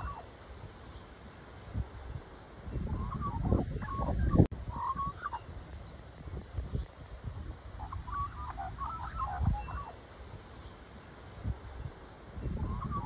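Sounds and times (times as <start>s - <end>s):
magpie warbling: 0.0s - 0.3s.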